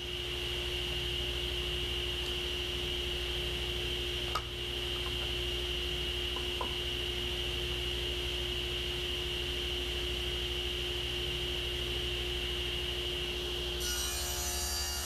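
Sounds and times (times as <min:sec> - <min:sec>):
table saw motor whining: 0:13.8 - 0:15.0.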